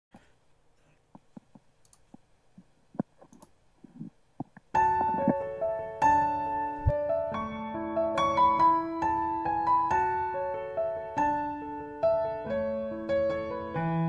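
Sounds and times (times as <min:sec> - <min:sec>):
faint clicks: 0:00.1 - 0:05.4
piano-like keyboard chords: 0:04.8 - 0:14.0.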